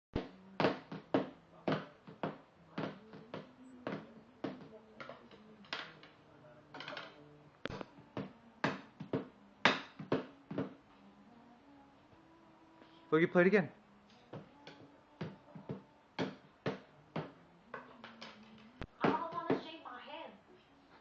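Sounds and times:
toddler drumming on padded table: 0.2s - 6.2s, 7.7s - 10.8s.

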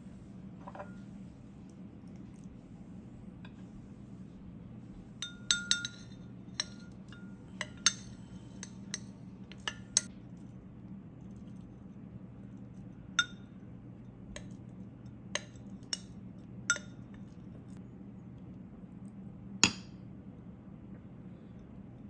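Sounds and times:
low steady hum: 0.0s - 22.0s
metal spoon clinking against glass: 5.2s - 10.1s, 16.7s - 17.0s.

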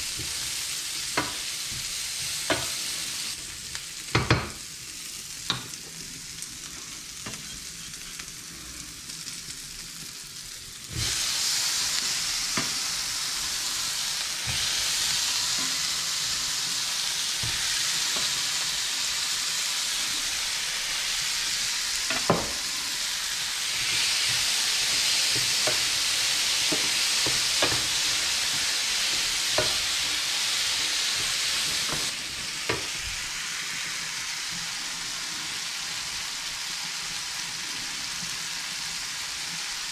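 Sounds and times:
onion and garlic sizzling in pan: 0.0s - 39.9s.

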